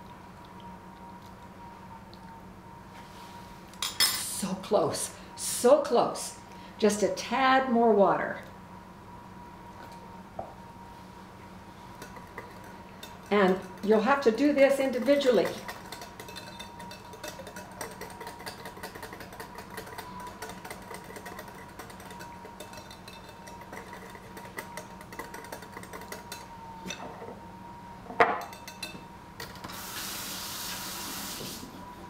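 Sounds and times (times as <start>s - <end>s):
whisk clinking against glass bowl: 12.0s - 27.0s, 28.4s - 29.0s.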